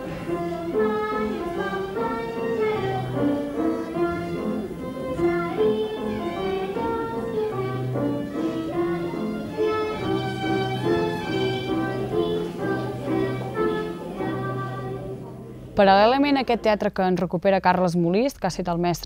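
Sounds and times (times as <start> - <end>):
children singing: 0.0 - 15.7
instrumental accompaniment: 0.0 - 16.7.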